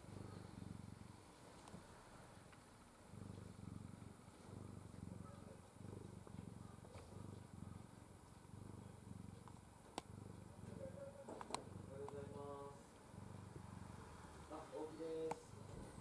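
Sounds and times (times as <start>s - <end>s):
cat purring: 0.0s - 16.0s.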